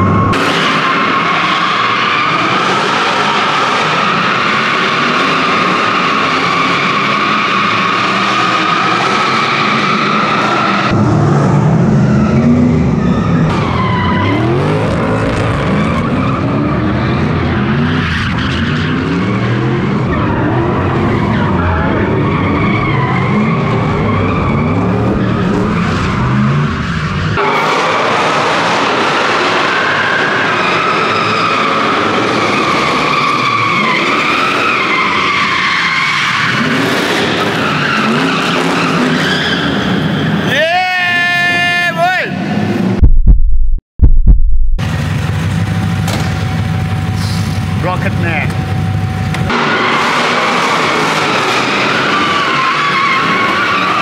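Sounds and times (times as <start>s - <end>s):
car tyres squealing: 0.0s - 11.1s, 11.7s - 42.7s, 49.4s - 54.0s
car engine revving: 0.0s - 29.8s.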